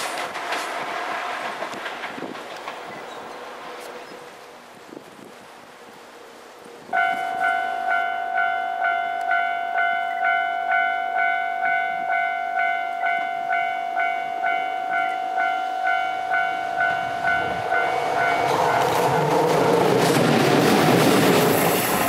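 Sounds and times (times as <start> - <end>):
approaching locomotive rumble: 0.0 - 8.9, 10.0 - 22.0
level crossing alarm ringing: 7.0 - 18.9.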